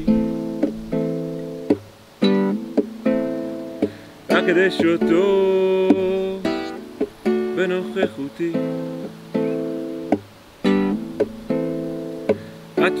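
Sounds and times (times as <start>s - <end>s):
man singing wordless notes: 0.0s - 0.6s, 4.2s - 9.2s, 12.6s - 13.0s
acoustic guitar strumming: 0.0s - 13.0s.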